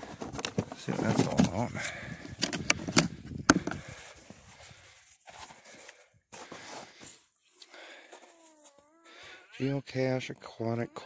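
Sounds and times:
plastic box clicks and knocks: 0:02.3 - 0:03.8.

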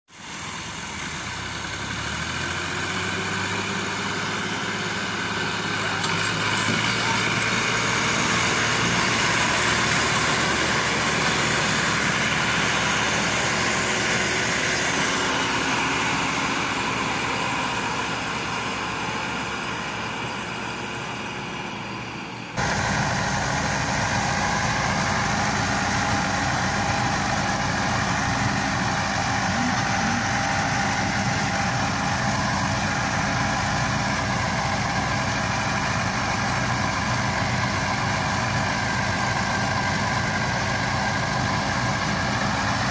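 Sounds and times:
diesel engine running under load: 0:00.1 - 0:42.9
tractor diesel engines working hard: 0:00.1 - 0:42.9.

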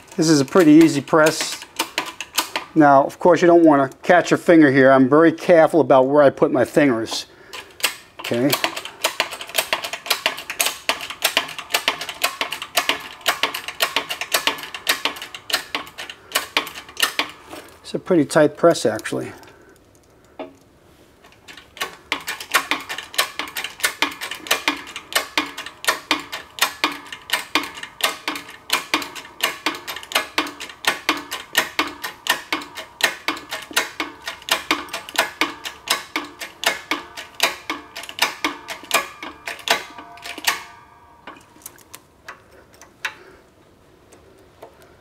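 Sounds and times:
hydraulic press clicking: 0:00.0 - 0:02.9, 0:07.1 - 0:17.7, 0:21.3 - 0:43.3.

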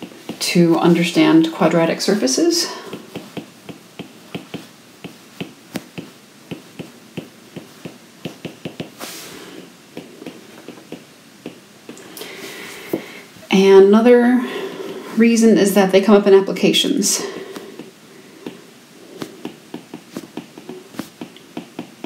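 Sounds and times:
stylus tapping on tablet screen: 0:00.0 - 0:00.7, 0:02.8 - 0:12.1, 0:17.4 - 0:22.0.

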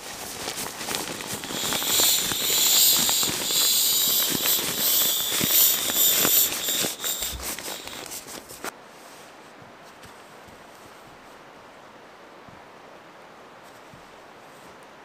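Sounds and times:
nylon fabric crinkling: 0:00.0 - 0:08.7
air hissing out of valve: 0:01.3 - 0:08.7.

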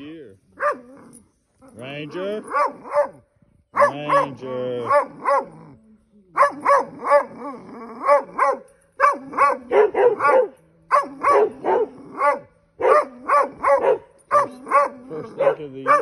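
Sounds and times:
dog barking sharply: 0:03.8 - 0:05.5, 0:08.1 - 0:16.0.

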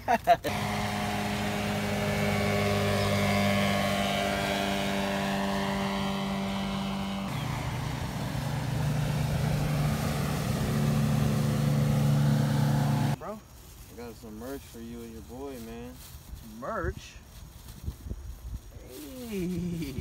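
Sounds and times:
outboard motor boats passing: 0:00.5 - 0:13.2.

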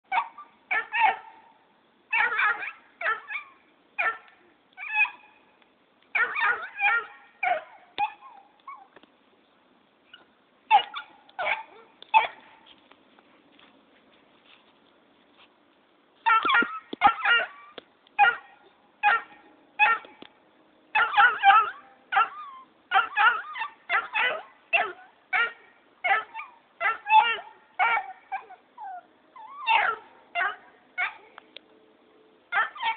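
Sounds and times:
puppy barking: 0:00.1 - 0:05.3, 0:06.2 - 0:08.9, 0:10.1 - 0:12.6, 0:16.2 - 0:20.2, 0:21.0 - 0:31.4, 0:32.5 - 0:32.9.

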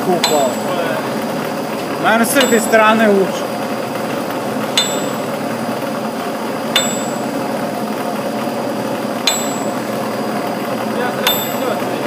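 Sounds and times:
rotating rig and heat gun running: 0:00.0 - 0:12.0
sharp metallic clink: 0:00.2 - 0:00.8, 0:02.4 - 0:03.0, 0:04.8 - 0:05.4, 0:06.8 - 0:07.4, 0:09.3 - 0:09.9.

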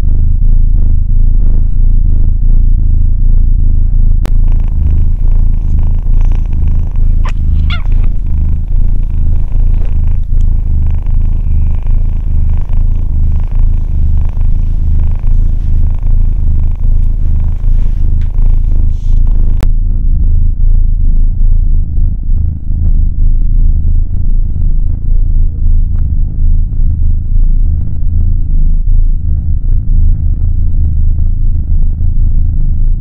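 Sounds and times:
kitten purring loudly: 0:00.0 - 0:33.0
kitten high squeak: 0:07.0 - 0:08.1.

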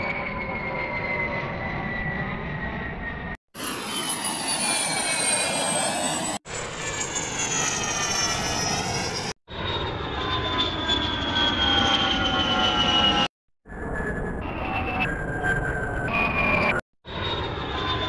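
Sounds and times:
jet engine whistling and roaring: 0:00.0 - 0:18.0.

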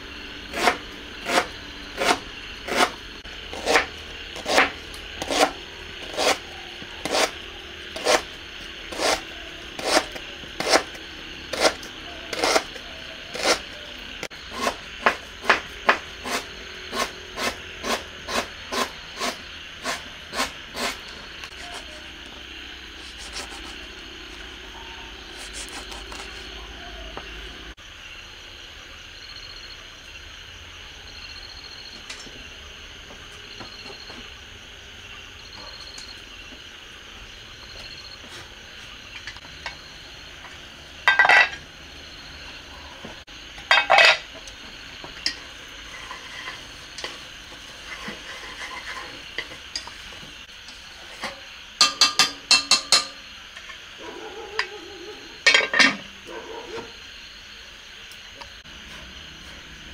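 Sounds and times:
insects chirping: 0:00.0 - 0:59.9
lid and chopsticks clanking on pot: 0:51.8 - 0:53.2, 0:55.4 - 0:56.0.

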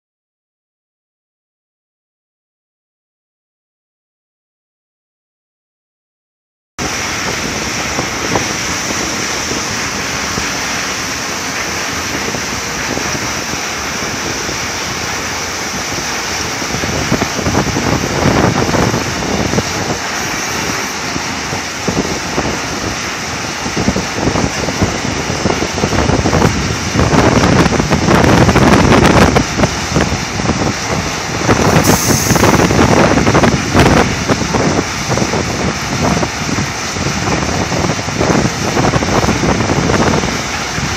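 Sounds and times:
diesel truck engine running: 0:06.8 - 0:40.9
wind buffeting microphone: 0:06.8 - 0:40.9
brief high hiss: 0:31.7 - 0:32.7.

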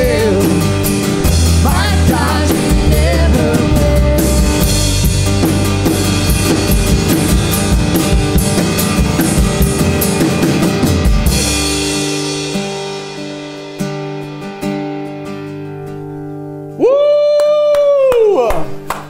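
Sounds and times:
drum kit playing: 0:00.0 - 0:15.3
bass and acoustic guitar: 0:00.0 - 0:17.2.

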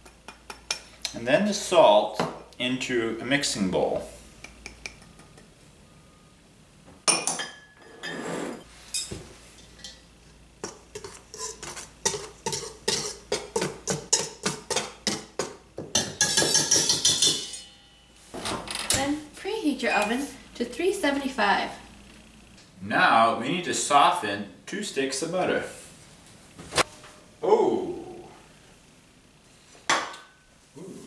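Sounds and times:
whisk scraping metal bowl: 0:10.6 - 0:14.9.

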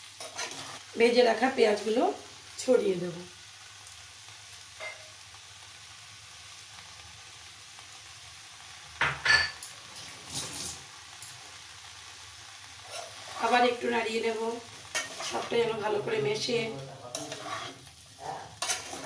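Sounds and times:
rice sizzling in a pan: 0:00.0 - 0:19.0
utensil scraping a pan: 0:00.2 - 0:00.9, 0:12.8 - 0:13.6, 0:14.9 - 0:15.8, 0:17.1 - 0:19.0.

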